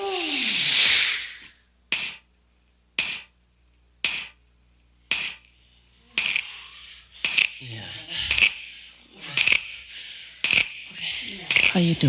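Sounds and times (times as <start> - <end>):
hiss: 0.0 - 2.3, 3.0 - 3.3, 4.0 - 4.4, 5.1 - 5.5, 6.2 - 7.6, 8.3 - 8.6, 9.3 - 9.7, 10.4 - 10.8, 11.5 - 11.8.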